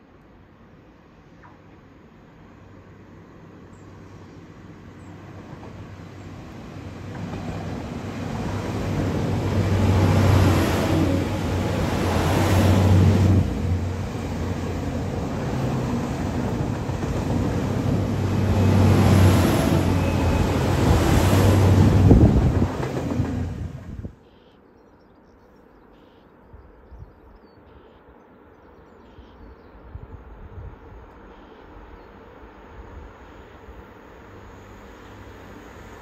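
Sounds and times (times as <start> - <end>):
train engine humming: 0.2 - 24.2, 30.8 - 36.0
train wheels on rails: 4.9 - 24.1.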